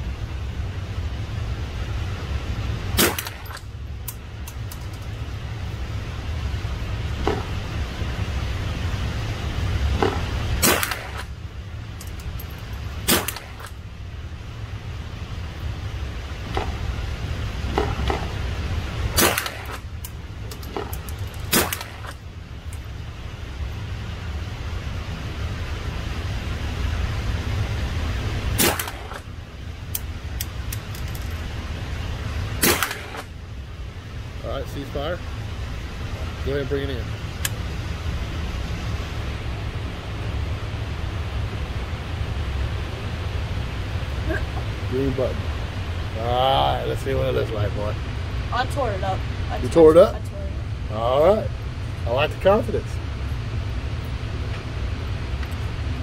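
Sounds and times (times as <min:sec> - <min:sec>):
steady low rumble: 0:00.0 - 0:56.0
rifle shots: 0:03.0 - 0:03.6, 0:10.6 - 0:11.3, 0:13.1 - 0:13.7, 0:19.2 - 0:19.8, 0:21.5 - 0:22.1, 0:28.6 - 0:29.2, 0:32.6 - 0:33.3.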